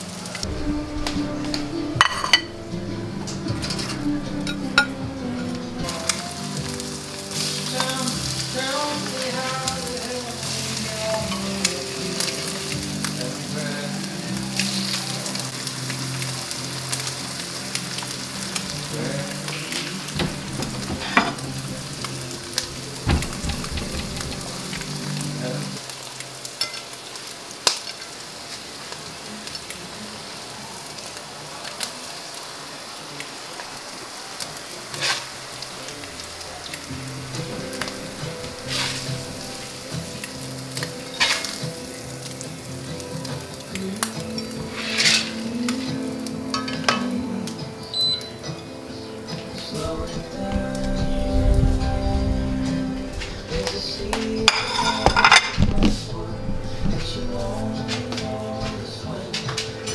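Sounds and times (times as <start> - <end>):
food sizzling in a skillet: 0.0 - 59.9
spatula clinking and scraping pan: 2.0 - 2.7, 26.6 - 27.0, 34.9 - 35.3, 37.4 - 40.2, 40.8 - 41.7, 44.4 - 45.6, 54.2 - 55.6.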